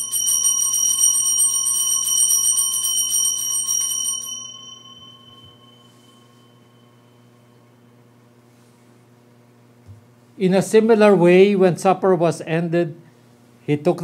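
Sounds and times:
altar bells ringing: 0.0s - 7.9s.

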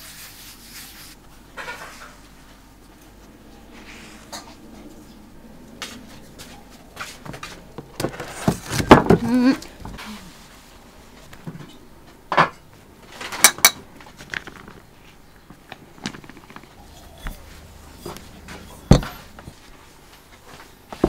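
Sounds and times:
dishes and utensils clinking: 16.8s - 19.7s.

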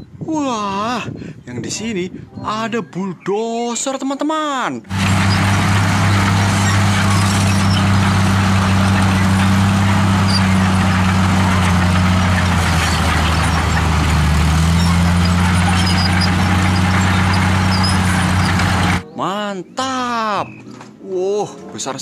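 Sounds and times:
blade pushing dirt and rock: 4.9s - 19.0s
bulldozer diesel engine running: 4.9s - 19.0s.

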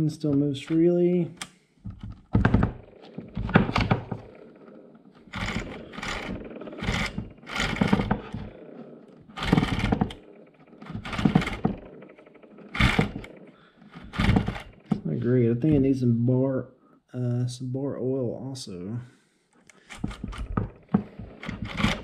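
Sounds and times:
chainsaw chain pulled along bar: 2.8s - 15.1s, 19.8s - 22.0s.

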